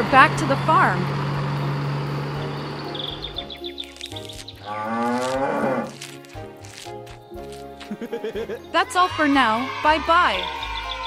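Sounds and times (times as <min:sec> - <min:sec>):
truck engine humming: 0:00.0 - 0:08.9
cow mooing: 0:04.6 - 0:06.1.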